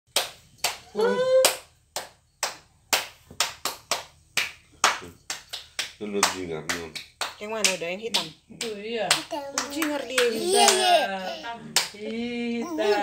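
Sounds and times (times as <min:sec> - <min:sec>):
hand claps: 0:00.1 - 0:10.9
high-pitched voice: 0:10.3 - 0:11.5.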